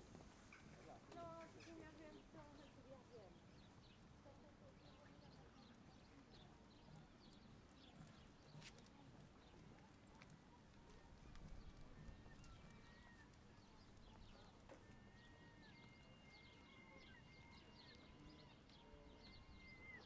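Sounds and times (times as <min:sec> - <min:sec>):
low steady background: 0:00.0 - 0:20.0
thin whistle-like tones: 0:19.0 - 0:20.0.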